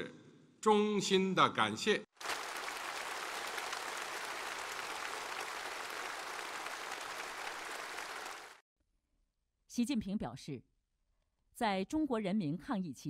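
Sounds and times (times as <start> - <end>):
large audience applauding: 2.2 - 8.6.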